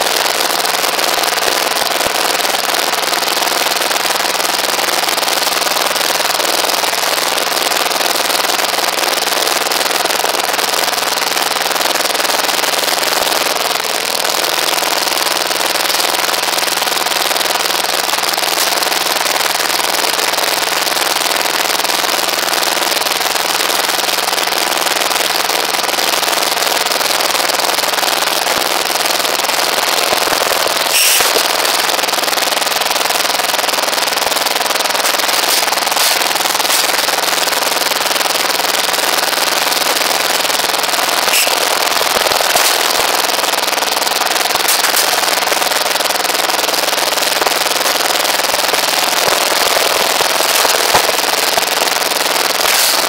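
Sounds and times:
machine rapid mechanical clatter: 17.5s - 19.3s, 29.9s - 32.2s, 34.6s - 53.0s
sharp metallic clank: 30.9s - 31.8s, 35.1s - 37.1s, 41.3s - 41.7s, 42.4s - 43.0s, 44.7s - 45.3s, 52.6s - 53.0s.

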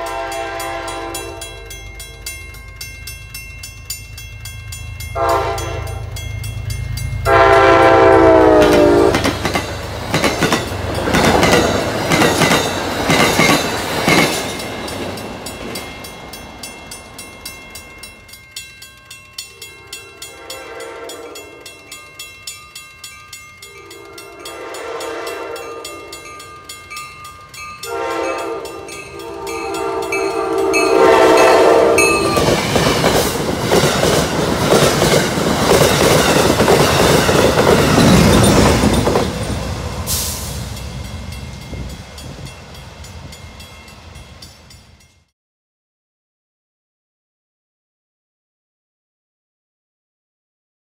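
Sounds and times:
train horn: 0.0s - 1.7s, 5.1s - 6.1s, 7.2s - 9.4s, 19.8s - 21.6s, 23.8s - 26.3s, 27.8s - 32.6s
train horn blasts: 0.0s - 2.2s, 5.1s - 6.2s, 7.2s - 9.4s, 19.8s - 21.6s, 23.8s - 26.3s, 27.8s - 32.6s
train wheel rumble: 0.0s - 45.1s
crossing bell ringing: 0.0s - 45.3s.

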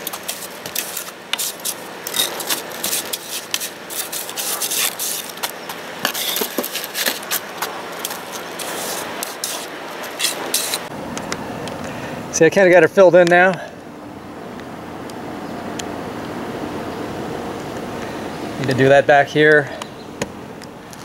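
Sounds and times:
trowel scraping wet concrete: 0.0s - 10.9s.

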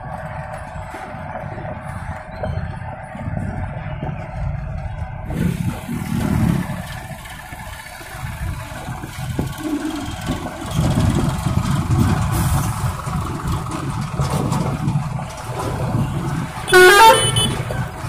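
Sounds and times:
diesel truck engine running: 0.0s - 18.0s
musical vehicle horn: 16.6s - 17.8s.

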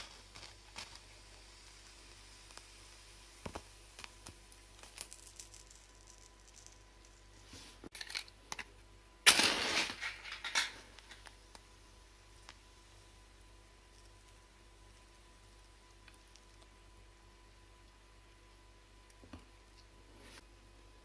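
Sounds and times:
match struck and flaring: 0.0s - 6.6s, 9.3s - 10.2s
faint clicks and crackles: 0.0s - 7.3s, 13.8s - 17.1s.

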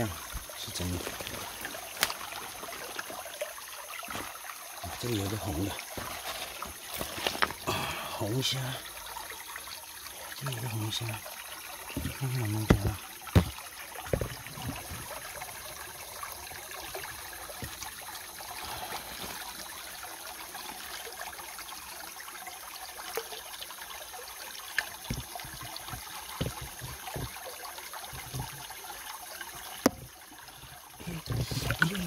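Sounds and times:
stream water trickling: 0.0s - 32.0s
small knocks: 11.9s - 15.1s, 25.0s - 27.4s.

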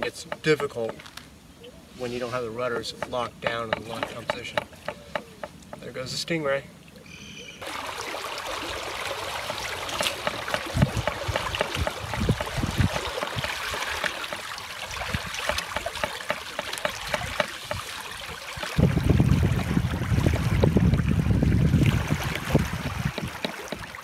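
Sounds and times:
water rushing along boat hulls: 7.6s - 24.0s.

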